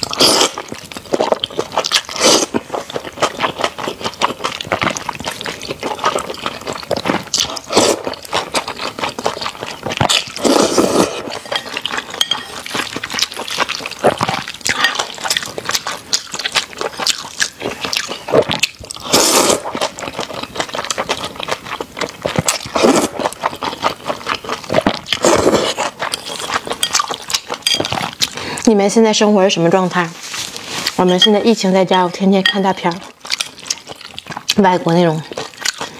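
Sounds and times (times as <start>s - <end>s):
noodle slurp: 0.0s - 3.4s, 4.3s - 11.6s, 12.7s - 20.3s, 22.3s - 28.6s
wet chewing: 0.0s - 35.9s.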